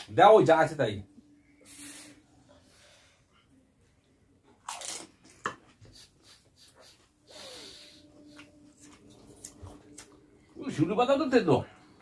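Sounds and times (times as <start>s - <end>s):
crisp shell crunching in mouth: 4.6s - 5.1s
chewing: 8.2s - 10.2s.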